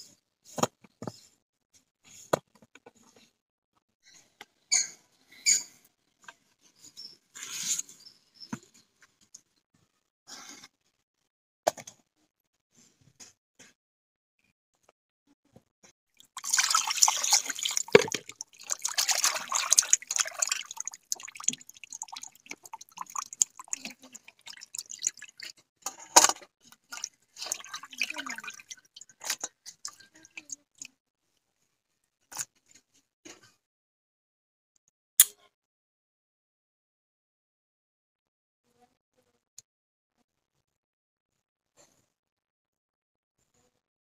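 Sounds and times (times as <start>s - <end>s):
water splashing in a bowl: 16.1s - 30.9s.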